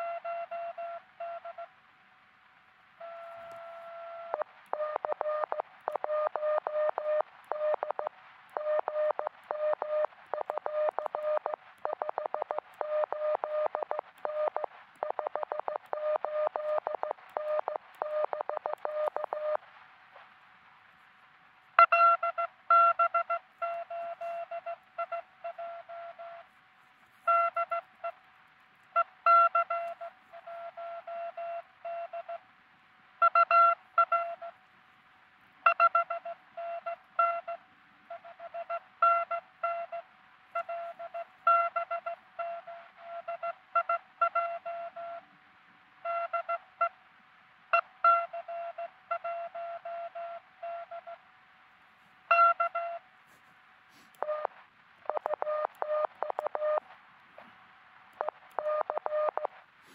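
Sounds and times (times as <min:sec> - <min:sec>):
morse code tones: 0:03.0 - 0:19.6, 0:21.8 - 0:26.4, 0:27.2 - 0:28.2, 0:52.3 - 0:53.0, 0:54.2 - 0:56.8, 0:58.2 - 0:59.6.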